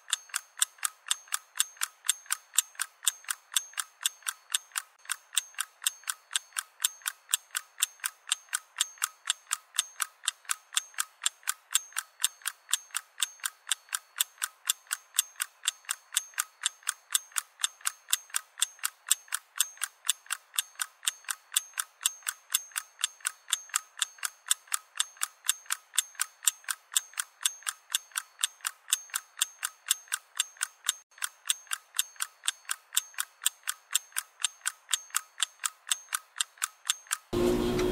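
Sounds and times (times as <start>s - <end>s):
mechanical ticking: 0.0s - 37.4s.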